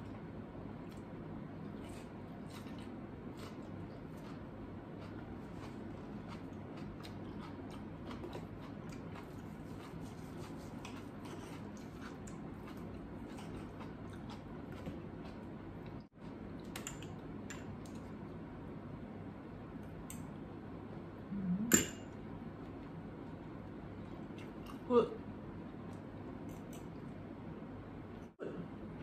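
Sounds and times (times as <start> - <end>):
soft chewing: 0.0 - 16.7, 22.6 - 24.9
low room hum: 0.0 - 29.0.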